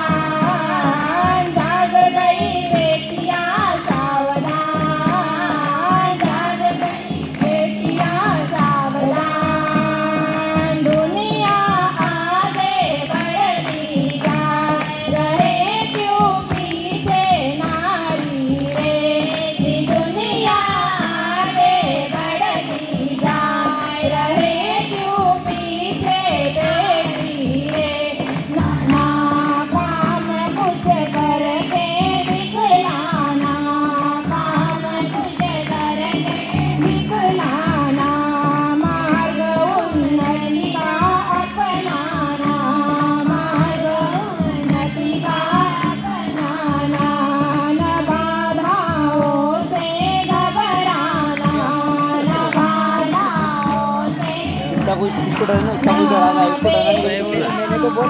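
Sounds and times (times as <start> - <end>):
children's choir singing: 50.0 - 58.0.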